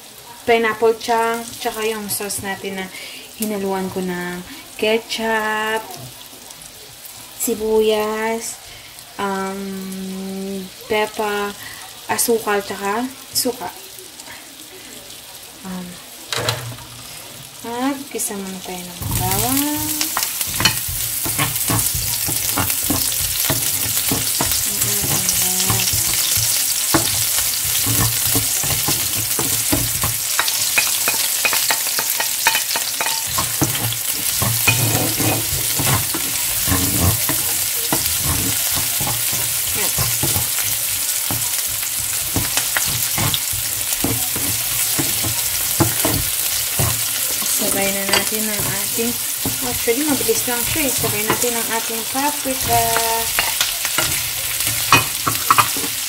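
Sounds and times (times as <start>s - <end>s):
onion and garlic sizzling: 0.0s - 56.0s
wooden spatula scraping pan: 18.9s - 56.0s.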